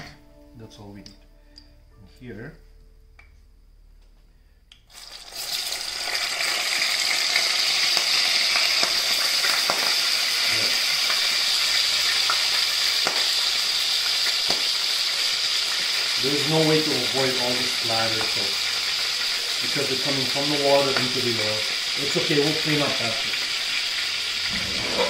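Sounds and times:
dumplings sizzling in hot oil: 0:04.9 - 0:25.0.

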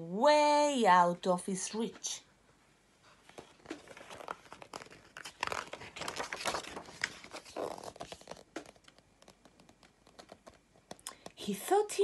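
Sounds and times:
paper pages rustling: 0:03.0 - 0:11.3.

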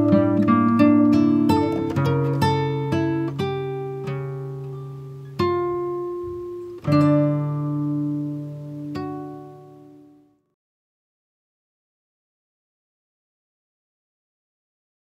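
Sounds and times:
plucked string instrument music: 0:00.0 - 0:10.4.

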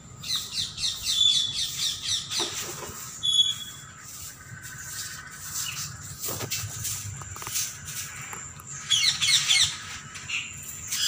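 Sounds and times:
bird chirps: 0:00.1 - 0:06.2, 0:07.6 - 0:11.0
bird squawk: 0:00.2 - 0:05.9, 0:08.8 - 0:11.0.

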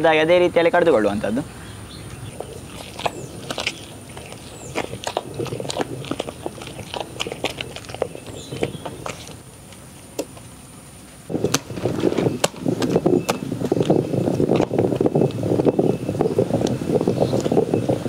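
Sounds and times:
wet stone clicks and squelches: 0:02.4 - 0:10.4.

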